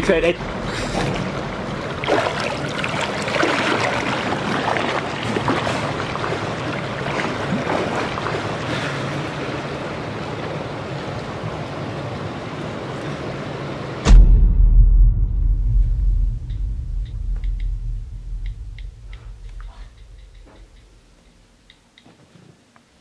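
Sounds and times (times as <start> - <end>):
pool water splashing: 0.0 - 14.1
lapping water: 0.8 - 9.8.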